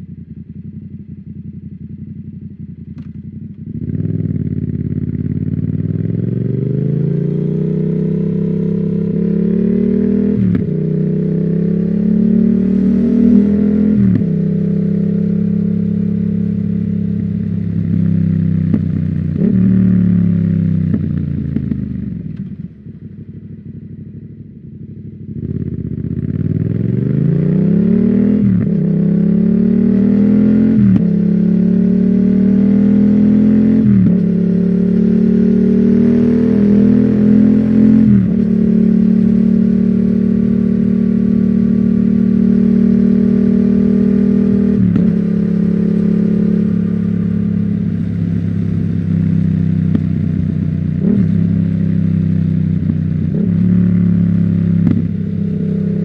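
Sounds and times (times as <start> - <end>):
motorcycle engine idling: 0.0 - 6.4, 20.0 - 26.7
motorcycle engine revving and shifting: 0.0 - 56.0.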